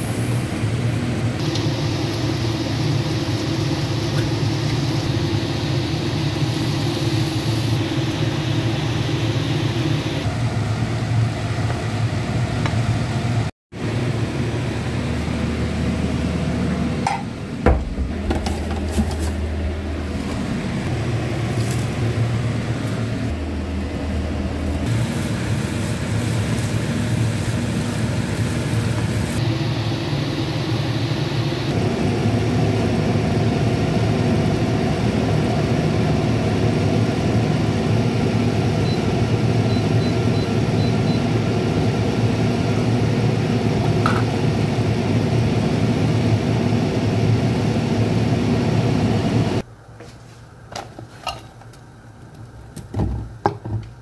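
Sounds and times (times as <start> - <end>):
utensils clinking on pots: 51.2 - 51.6.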